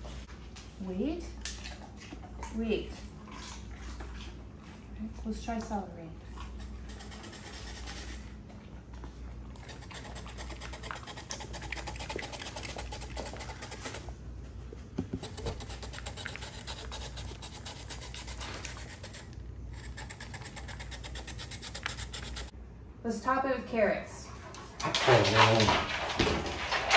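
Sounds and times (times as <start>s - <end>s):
celery scraping on plastic grater: 9.6s - 14.0s, 15.2s - 22.5s.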